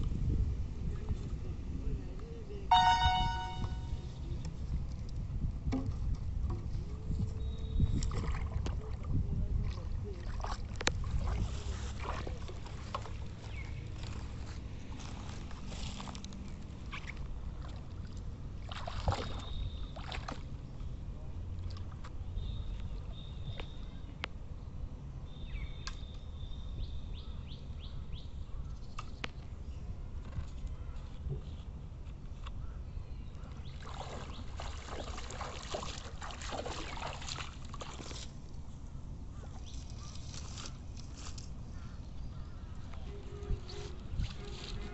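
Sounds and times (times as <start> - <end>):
person wading through muddy water: 7.9 - 21.0, 33.5 - 42.7.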